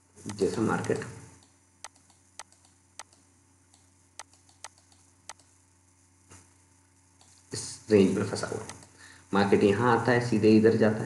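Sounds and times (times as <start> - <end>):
faint low hum: 0.0 - 11.0
computer mouse clicking: 0.3 - 5.6, 8.6 - 9.0.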